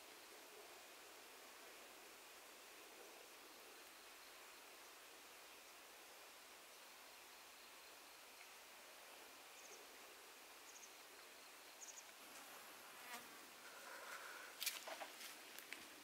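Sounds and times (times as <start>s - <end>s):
outdoor hiss: 0.0s - 16.0s
insect chirps: 1.0s - 15.8s
footsteps rustling through brush: 14.1s - 16.0s.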